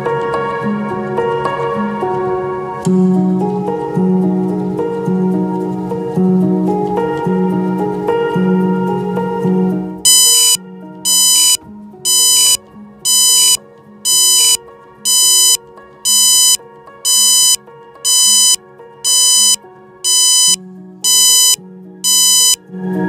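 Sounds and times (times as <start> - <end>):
background music: 0.0 - 23.0
buzzer beeping: 10.1 - 22.6.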